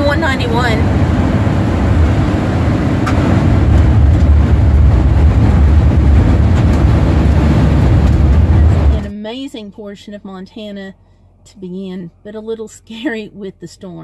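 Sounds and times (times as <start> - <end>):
wind and road noise rumble: 0.0 - 9.2.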